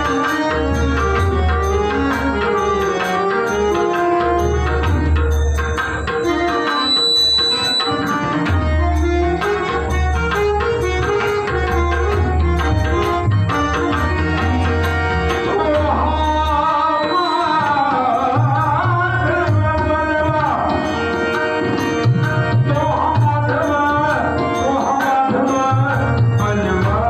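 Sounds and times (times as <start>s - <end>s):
hand drums playing rhythm: 0.0s - 7.0s, 7.6s - 27.0s
harmonium: 0.0s - 27.0s
man singing: 15.3s - 21.1s, 22.5s - 27.0s.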